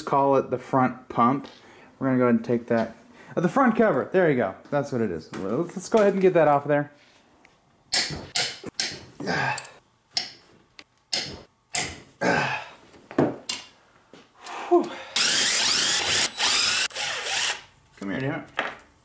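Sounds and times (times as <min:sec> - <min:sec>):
cordless drill spinning: 0:15.2 - 0:17.7.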